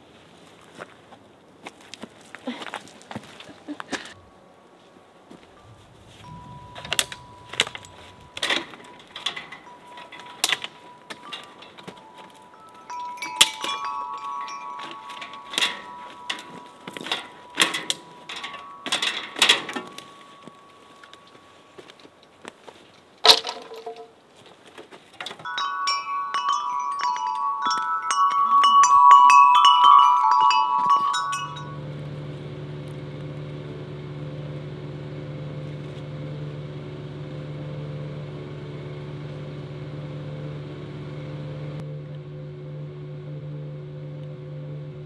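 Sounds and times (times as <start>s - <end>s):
low hum with held tones: 2.5s - 22.5s, 25.5s - 45.0s
chimes ringing: 5.6s - 22.2s, 25.4s - 32.6s.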